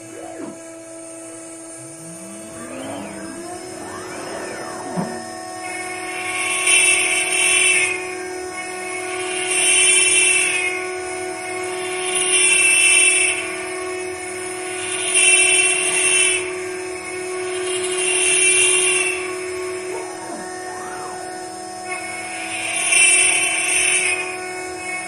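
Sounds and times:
router spindle whining: 0.0s - 6.0s, 19.7s - 21.9s
router bit cutting wood: 1.6s - 5.5s.

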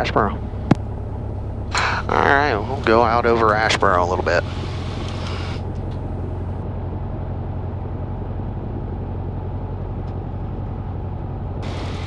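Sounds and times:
light aircraft engine droning: 0.0s - 12.0s.

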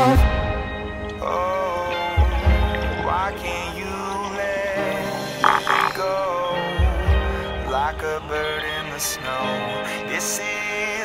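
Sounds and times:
wavering melody: 5.4s - 6.1s.

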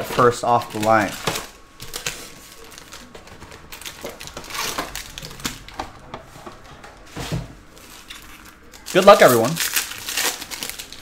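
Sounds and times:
foil packs crinkling: 0.0s - 6.7s, 7.6s - 11.0s.

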